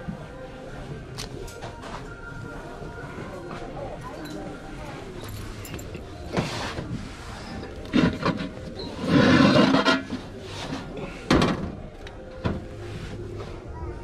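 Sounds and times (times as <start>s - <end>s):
pot rattling scrape: 7.8s - 10.2s.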